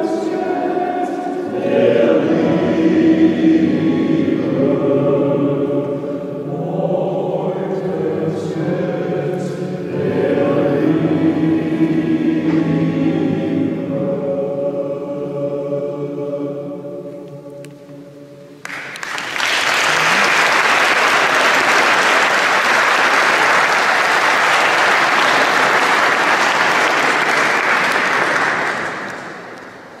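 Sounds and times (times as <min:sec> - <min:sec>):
men's choir holding a chord: 0:00.0 - 0:18.6
audience applause: 0:18.6 - 0:30.0.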